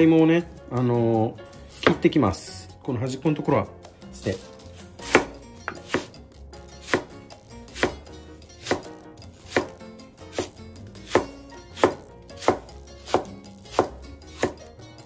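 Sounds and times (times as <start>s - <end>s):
knife knocking on cutting board: 5.1s - 6.1s.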